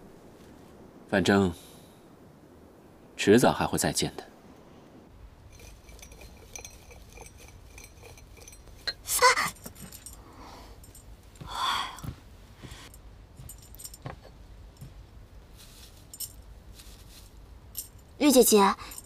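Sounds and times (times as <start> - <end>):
tools and dishes clinking: 5.5 - 10.2.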